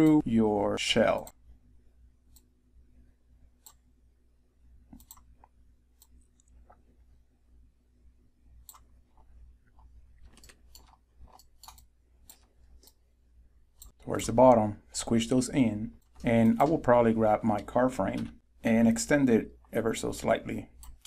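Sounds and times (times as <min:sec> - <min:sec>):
mouse and keyboard clicks: 0:04.9 - 0:06.7, 0:10.2 - 0:13.0.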